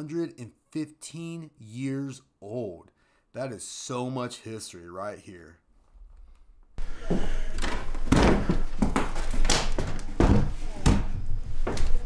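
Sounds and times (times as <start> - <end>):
footsteps on wooden floorboards: 6.8 - 12.0.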